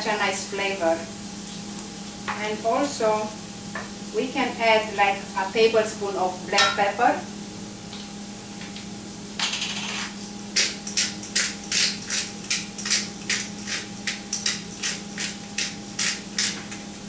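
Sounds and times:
pepper mill grinding: 9.4 - 16.8.

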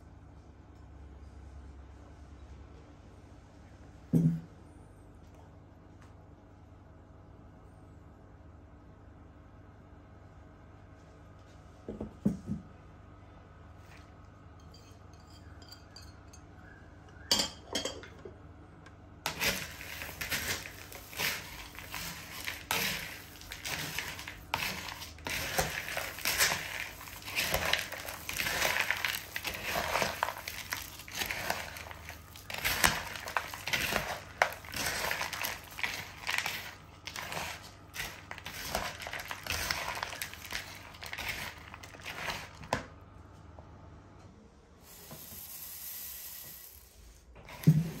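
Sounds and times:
crunching dry snack: 19.3 - 42.6.

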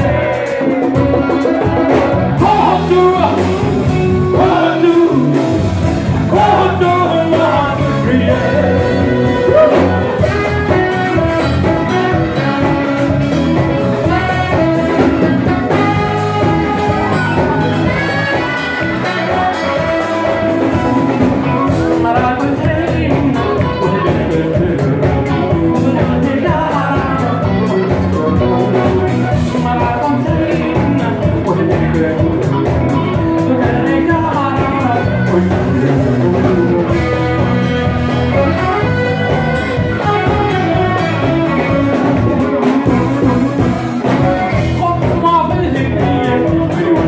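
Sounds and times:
saxophone: 0.0 - 31.3, 32.4 - 47.0
electric bass: 0.0 - 47.0
electric guitar: 0.0 - 47.0
man singing: 0.0 - 47.0.

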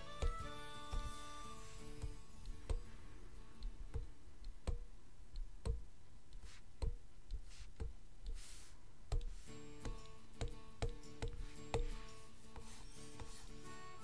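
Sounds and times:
stylus tapping on tablet: 0.0 - 1.3, 1.9 - 3.0, 3.6 - 8.5, 9.1 - 13.5
scratchy pen strokes: 6.3 - 10.2, 11.0 - 13.8.

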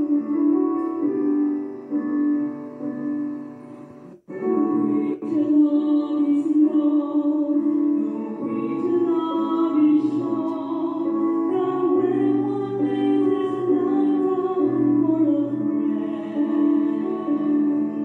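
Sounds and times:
woman singing: 4.3 - 18.0.

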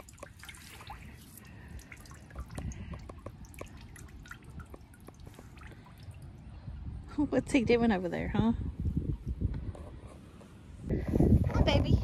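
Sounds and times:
water trickling into metal tank: 0.0 - 6.6.

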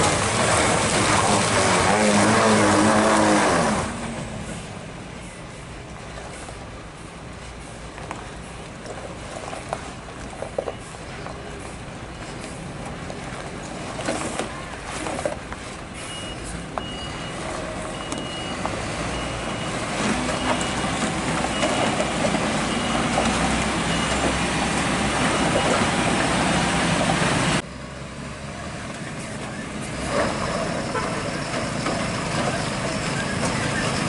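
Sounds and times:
diesel truck engine labouring: 0.0 - 34.0
reversing beeper: 16.0 - 24.4, 25.1 - 26.0.

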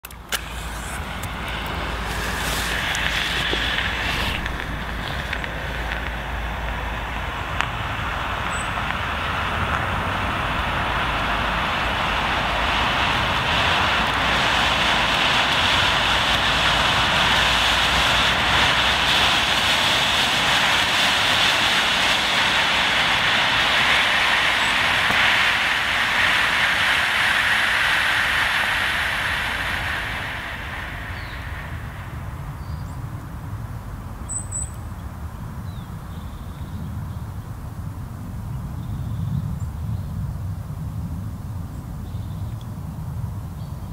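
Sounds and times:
smoke grenade hissing: 0.0 - 33.5.

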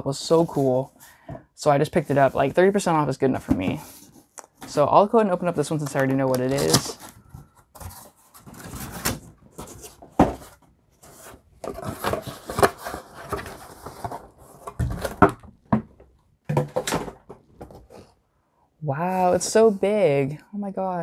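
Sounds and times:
cardboard scraping and rustling: 6.0 - 15.5.

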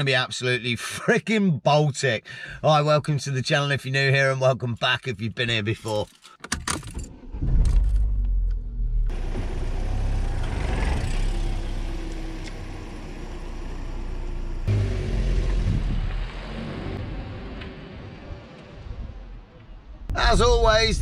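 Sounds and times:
car engine rumble: 6.6 - 21.0
road noise: 7.1 - 21.0.

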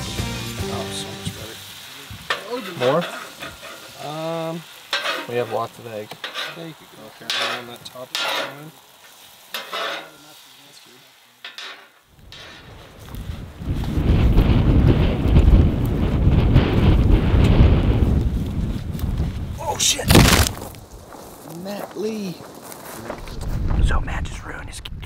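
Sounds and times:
food sizzling: 0.0 - 23.2
metal spatula scraping griddle: 2.3 - 4.2, 4.8 - 8.7, 9.5 - 10.4, 11.4 - 12.8.

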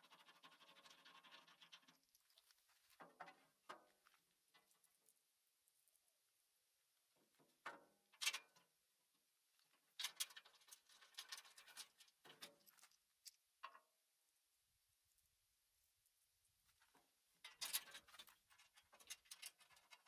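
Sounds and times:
metal clicks and rattles: 9.7 - 13.9, 17.4 - 20.0.

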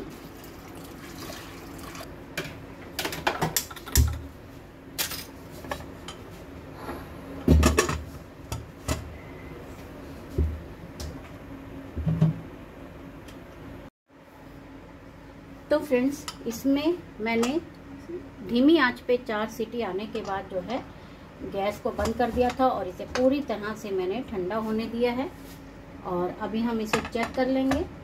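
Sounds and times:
water pouring into pot: 0.2 - 2.1.

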